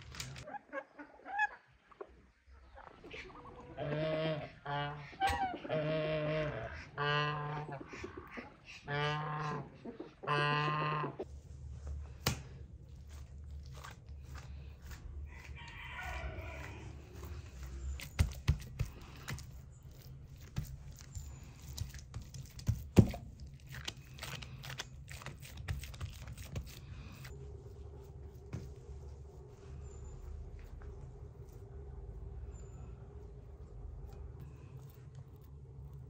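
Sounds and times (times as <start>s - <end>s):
low steady hum: 0.0s - 36.0s
rooster crowing: 15.2s - 17.3s.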